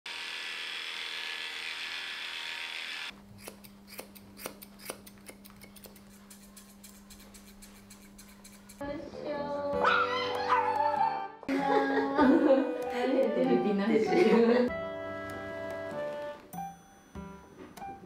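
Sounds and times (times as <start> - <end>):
electric grooming tool whirring: 0.1 - 4.0
scissors snipping fur: 3.4 - 8.8.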